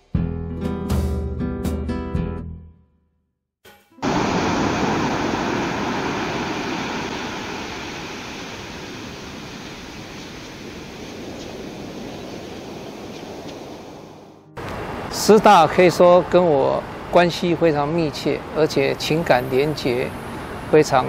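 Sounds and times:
waves breaking on beach: 4.0 - 14.2.

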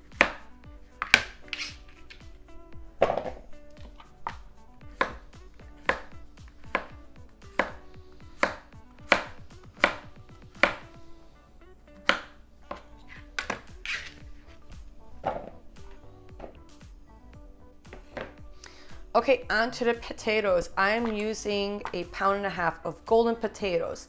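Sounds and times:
knife cutting on a cutting board: 0.2 - 2.2, 5.8 - 6.9, 7.5 - 10.9, 12.0 - 14.2.

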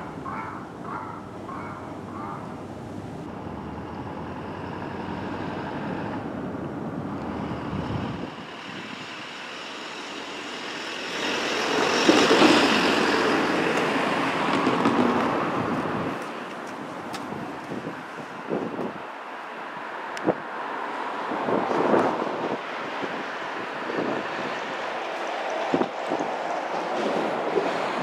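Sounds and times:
rumble of passing traffic: 0.0 - 28.0
vehicle passing close: 1.4 - 16.2.

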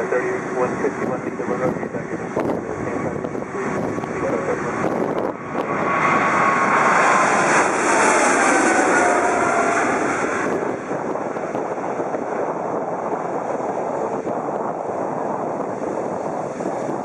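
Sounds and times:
jet taking off: 0.0 - 17.0.

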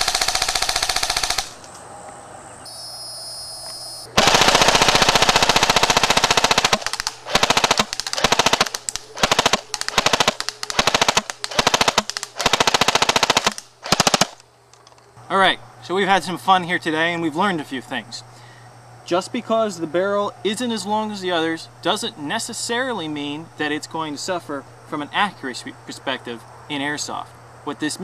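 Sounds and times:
airsoft rifle firing bursts: 0.0 - 1.6, 4.2 - 14.4.

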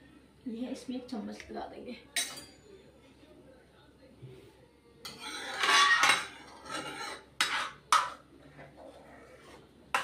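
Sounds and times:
steel ladle scraping iron pot: 5.1 - 8.2.

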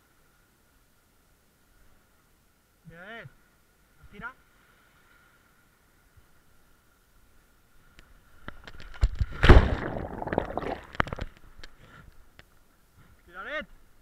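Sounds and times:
water splashing and gurgling: 9.0 - 11.4.

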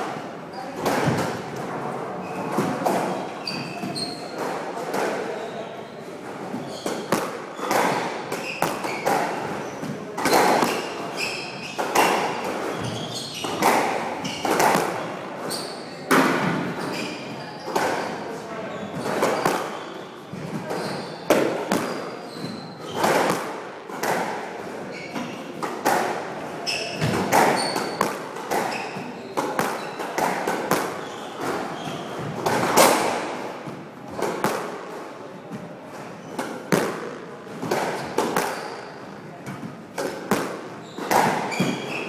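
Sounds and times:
racket striking squash ball: 6.4 - 18.2, 18.9 - 35.1, 35.9 - 42.0
ball smacking off court walls: 6.5 - 11.1, 11.8 - 17.0, 19.0 - 19.8, 20.5 - 24.4, 26.9 - 34.8, 36.3 - 42.0.

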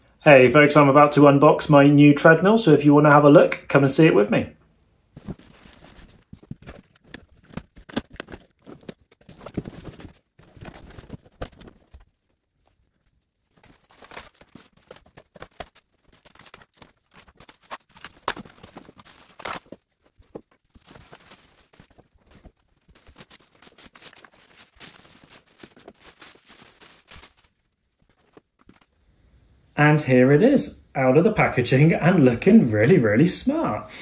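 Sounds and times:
foam packing rustling: 5.1 - 29.0.

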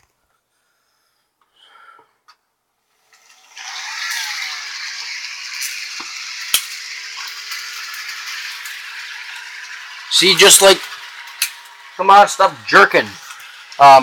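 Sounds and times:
model train rattling whir: 3.0 - 14.0.

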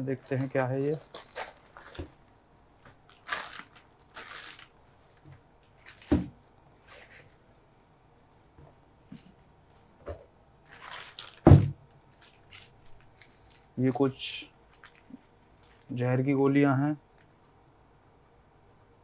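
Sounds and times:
plastic wrapping crinkling: 0.0 - 7.3, 10.6 - 17.5
fabric bag rustling: 0.0 - 7.4, 10.6 - 16.0.

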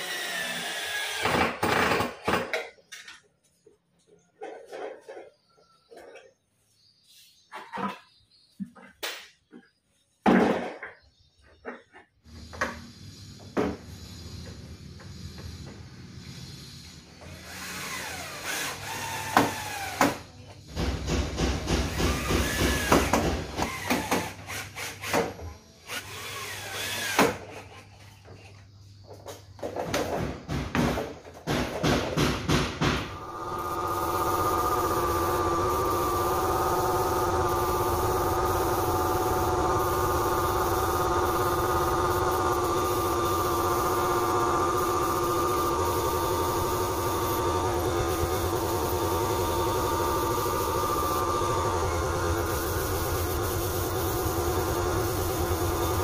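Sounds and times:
steady machine drone: 33.0 - 56.0.

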